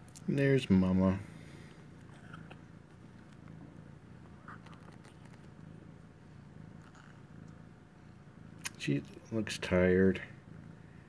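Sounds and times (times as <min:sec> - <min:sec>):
cat purring: 0:00.0 - 0:11.0
small clicks and rustles: 0:04.4 - 0:05.6.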